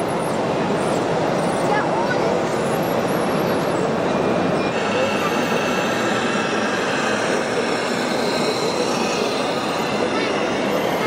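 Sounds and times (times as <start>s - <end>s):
crowd chatter: 0.0s - 11.0s
faint high whine: 4.1s - 11.0s.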